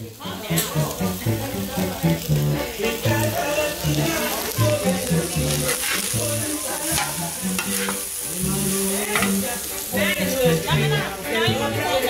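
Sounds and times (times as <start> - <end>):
chicken sizzling on a griddle: 0.0 - 12.0
spatula scraping metal: 5.7 - 6.1, 6.8 - 8.1.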